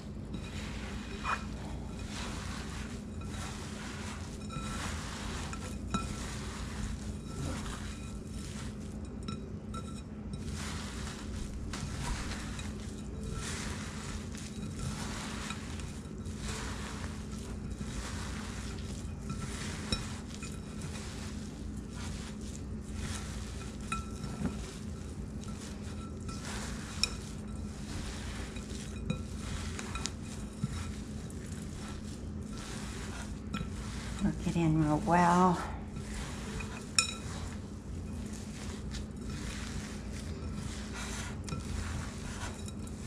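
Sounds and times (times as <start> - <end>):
wet squelching of kneaded meat: 0.0 - 43.0
clinks against glass bowl: 36.0 - 37.4.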